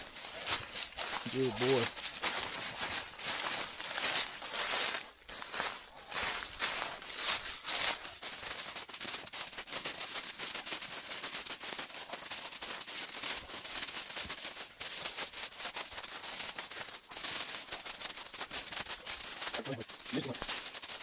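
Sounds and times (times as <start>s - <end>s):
footsteps crunching dry leaves: 0.0s - 21.0s.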